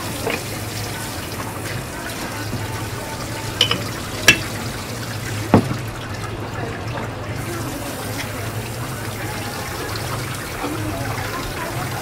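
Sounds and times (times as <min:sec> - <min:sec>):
water running from a hose: 0:00.0 - 0:12.0
water splashing on plastic board: 0:05.5 - 0:05.9.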